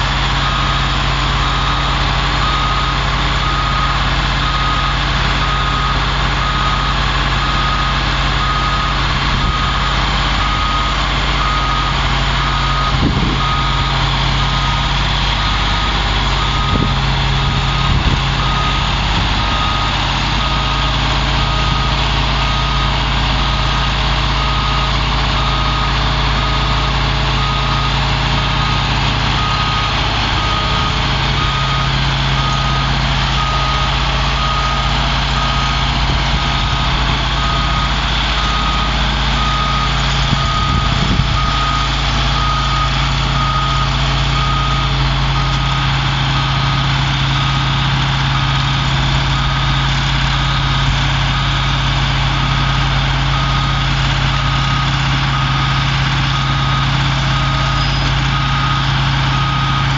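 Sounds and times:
diesel truck engine idling: 0.0 - 59.9
warning alarm beeps: 0.0 - 59.9.

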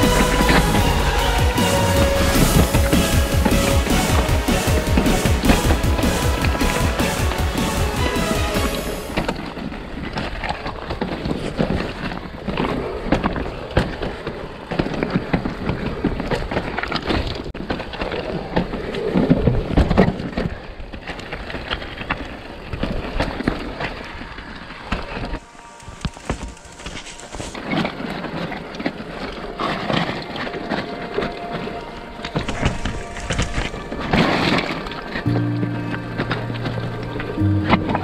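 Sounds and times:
bike tyres clattering over stones: 9.0 - 30.6.

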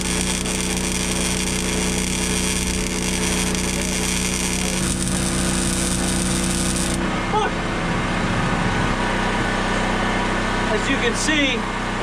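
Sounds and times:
welding arc sizzling: 0.0 - 7.1
generator running: 0.0 - 8.3.

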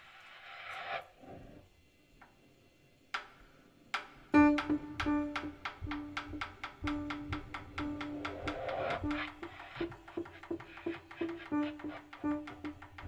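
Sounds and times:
fast even tapping: 4.4 - 13.0.

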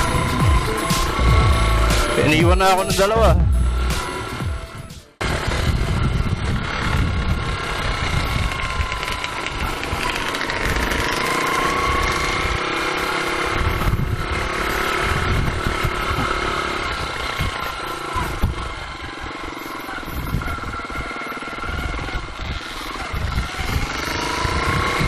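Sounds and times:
dirt bike engine revving: 0.0 - 25.0
wind rumbling on microphone: 5.2 - 25.0.

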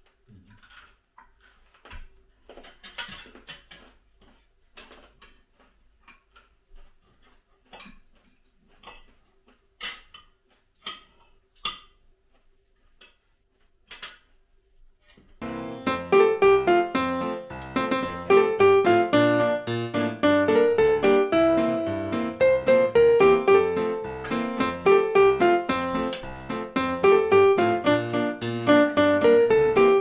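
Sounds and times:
cutlery clinking on plates: 2.6 - 3.9, 9.8 - 12.0.

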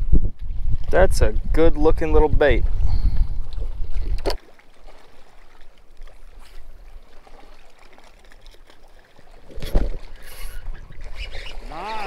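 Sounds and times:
water lapping against boat hull: 2.5 - 12.0.

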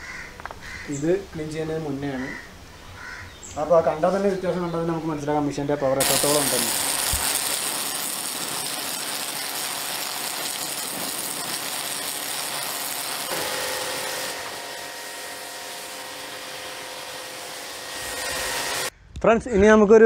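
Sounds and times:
pressure washer spraying water: 6.0 - 18.9
washer motor whine: 6.4 - 18.9.

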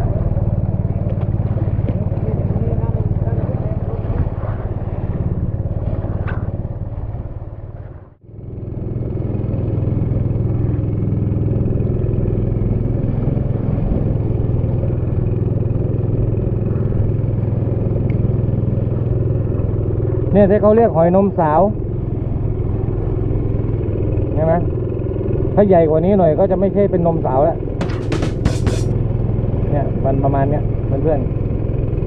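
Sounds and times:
boat engine droning: 0.0 - 32.0.

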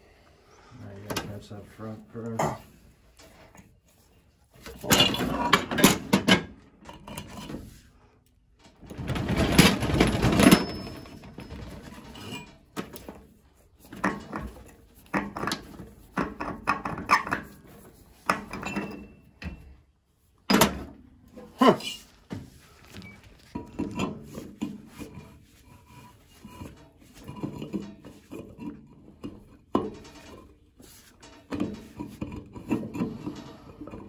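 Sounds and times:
metal knocks and clatter: 4.6 - 7.7, 8.6 - 19.8, 22.3 - 34.0.

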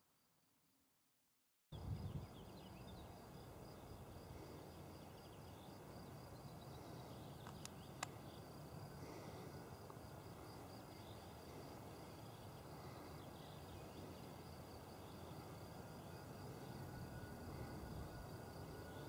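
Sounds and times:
insects trilling: 1.8 - 19.0
sharp click: 7.4 - 8.2.

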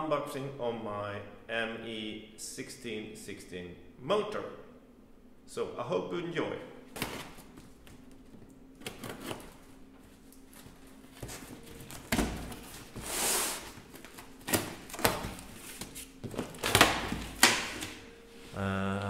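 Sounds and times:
cardboard rustling: 7.0 - 17.5.

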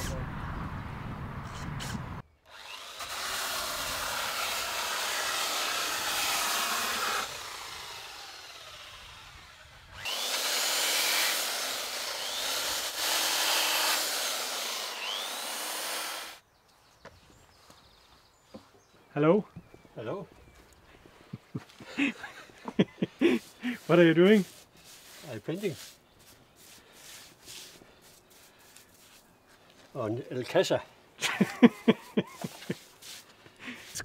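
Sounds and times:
power tools on timber: 1.4 - 16.4, 21.8 - 29.2
belt sander on wood: 1.8 - 16.4, 23.0 - 29.2, 31.9 - 33.3.

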